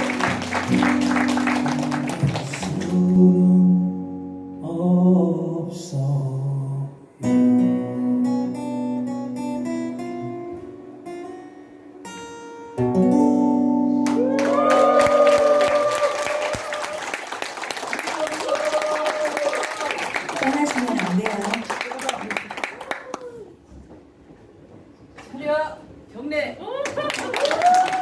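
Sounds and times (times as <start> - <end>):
acoustic guitar duo playing: 0.0 - 14.8
person singing: 2.0 - 7.0.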